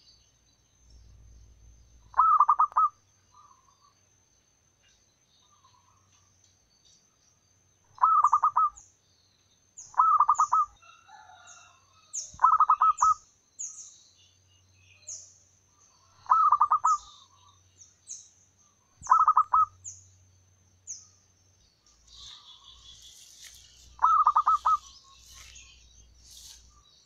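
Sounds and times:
small bird chirping: 0.0s - 4.2s, 4.8s - 27.0s
dove cooing trills: 2.1s - 3.7s, 8.0s - 8.8s, 9.9s - 10.8s, 12.4s - 13.2s, 16.1s - 17.4s, 19.0s - 19.8s, 24.0s - 25.8s.

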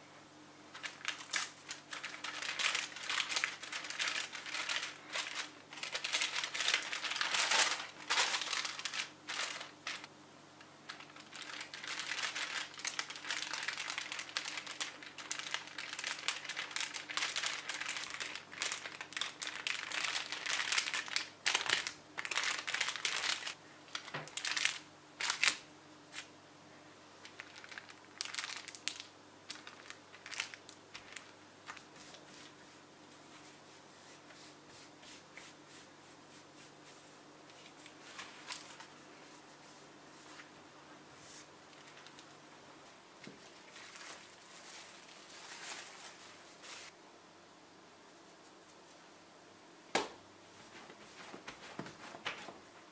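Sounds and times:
parchment paper crinkling: 0.7s - 10.1s, 10.8s - 26.3s, 27.2s - 32.6s, 37.5s - 40.5s, 41.2s - 42.4s, 43.3s - 47.0s.

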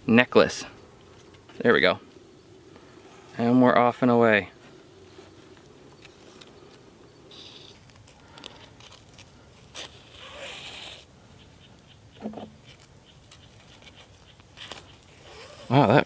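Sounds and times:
thread drawn through hissing: 9.7s - 11.1s.

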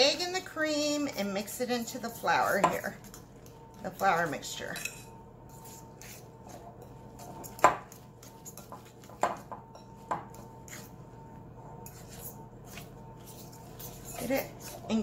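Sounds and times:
utensil scraping glass bowl: 3.9s - 8.8s, 11.8s - 15.0s.

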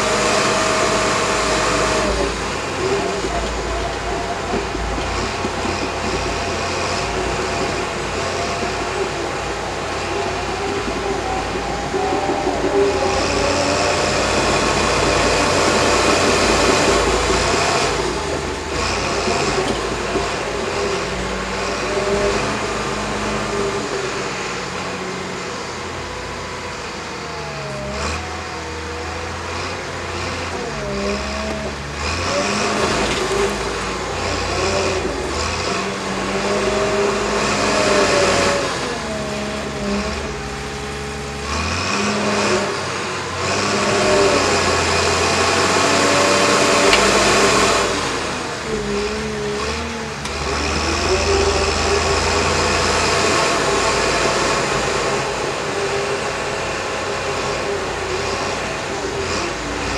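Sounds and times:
bulldozer diesel engine under load: 0.0s - 59.9s.

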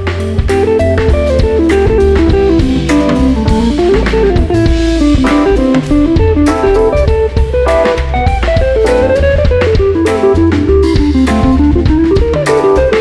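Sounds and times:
bass line: 0.0s - 13.0s
drum kit with cymbals: 0.0s - 13.0s
electric guitar melody: 0.0s - 13.0s.

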